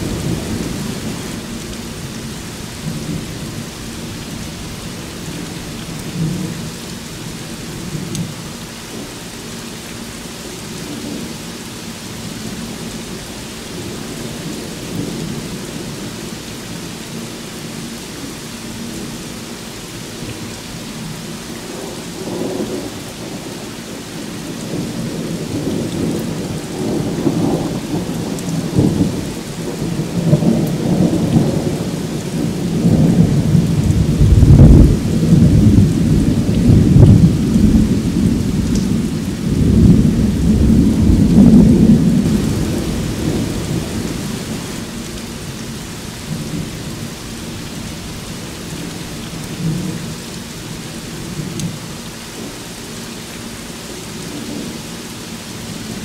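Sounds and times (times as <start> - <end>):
rolling thunder: 0.0 - 2.2, 24.6 - 45.5
steady rain: 0.0 - 56.0.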